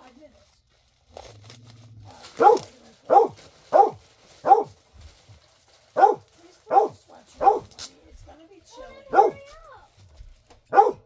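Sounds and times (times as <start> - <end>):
dog barking: 2.4 - 4.8, 6.0 - 7.7, 9.1 - 9.5, 10.7 - 11.0.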